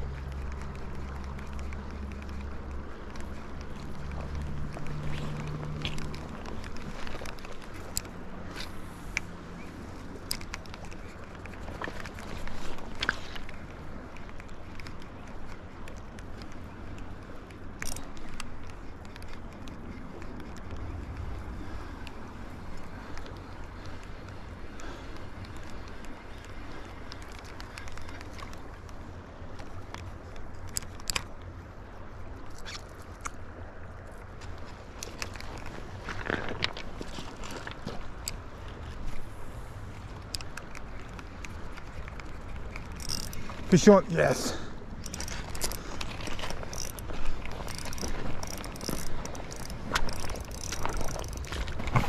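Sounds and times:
fishing reel spinning: 17.6s - 20.0s, 40.3s - 44.4s, 45.0s - 52.0s
river water rushing: 39.4s - 52.0s.

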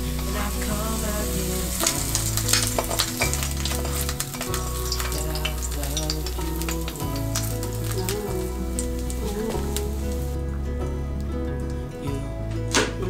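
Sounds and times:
egg sizzling in frying pan: 0.0s - 10.4s.

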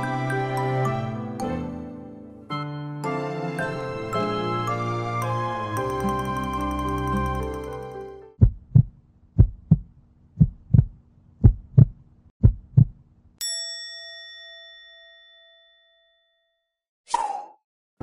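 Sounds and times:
bell-like ding: 5.8s - 8.0s, 13.4s - 16.7s
heartbeat thumps: 8.4s - 13.0s.

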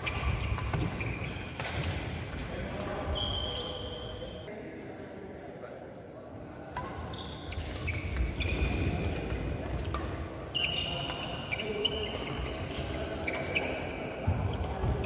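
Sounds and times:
rackets striking shuttlecock: 0.0s - 3.2s.

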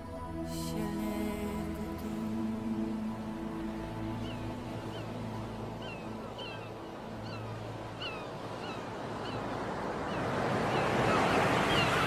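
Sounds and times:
wind: 0.0s - 12.0s
seabirds calling: 3.6s - 12.0s.

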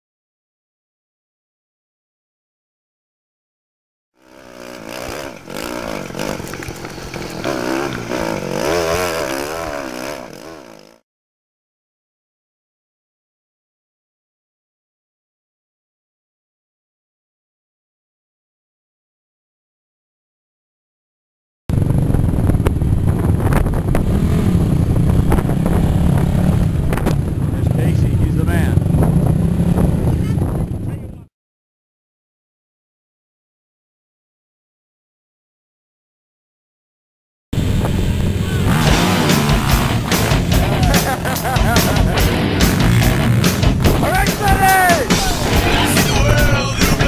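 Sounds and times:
racing engine revving: 4.2s - 11.0s, 37.6s - 47.0s
wind buffeting microphone: 21.7s - 31.3s, 37.6s - 38.8s.

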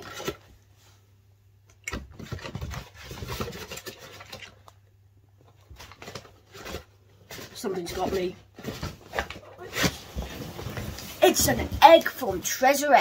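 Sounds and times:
cardboard package scraping and rustling: 0.0s - 0.5s, 2.1s - 4.6s, 5.6s - 12.1s.

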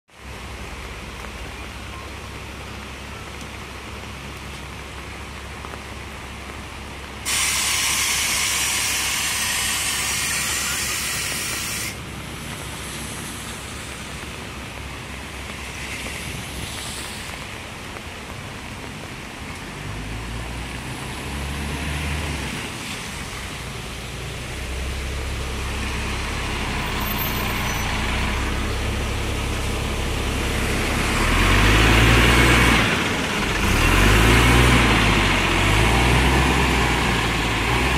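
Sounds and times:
bus engine running: 0.2s - 37.9s
compressed air hiss: 7.2s - 12.0s.

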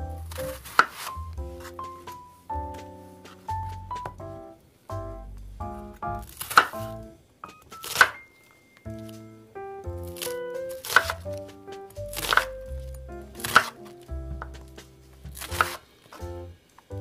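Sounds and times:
background music: 0.0s - 17.0s
knife cutting on wooden board: 13.4s - 13.8s, 15.4s - 15.8s.

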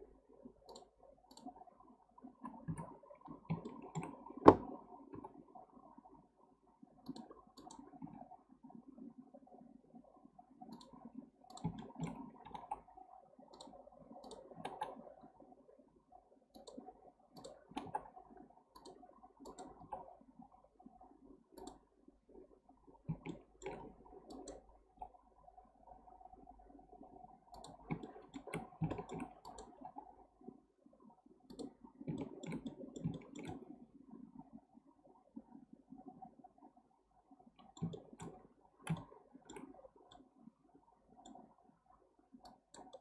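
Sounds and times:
mouse and keyboard clicking: 3.5s - 4.7s, 10.7s - 12.8s, 13.5s - 15.0s, 17.4s - 18.1s, 18.8s - 20.0s, 23.1s - 24.6s, 27.5s - 29.8s, 31.5s - 33.6s, 37.6s - 40.2s, 42.4s - 43.0s.

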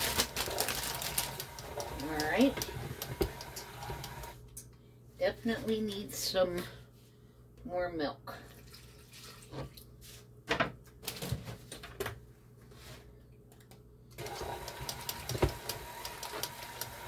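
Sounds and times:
stand mixer motor humming: 0.0s - 4.4s, 14.2s - 17.0s.

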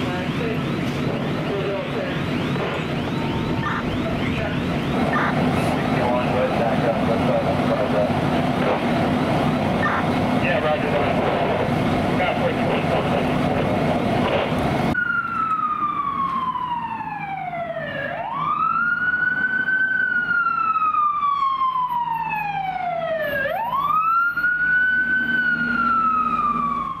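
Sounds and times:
noisy rumble: 0.0s - 15.0s
low engine hum: 0.0s - 15.2s
fire siren wailing: 0.0s - 27.0s.

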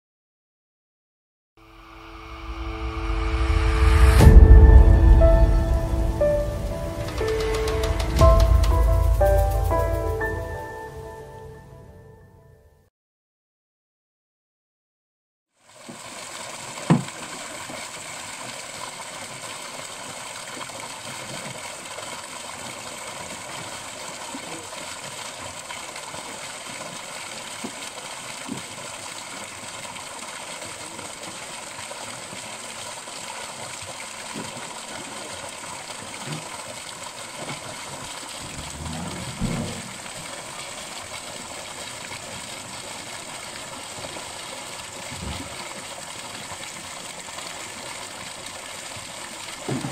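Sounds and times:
sharp knock: 1.9s - 9.9s
water gushing into a lake: 15.5s - 49.9s.

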